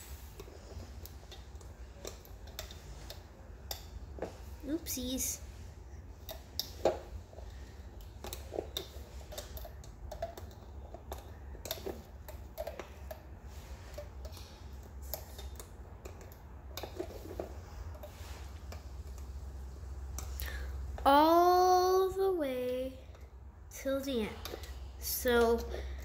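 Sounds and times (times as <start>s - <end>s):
low steady hum: 0.0s - 26.0s
hook and bands clicking on plastic pegs: 6.2s - 18.1s.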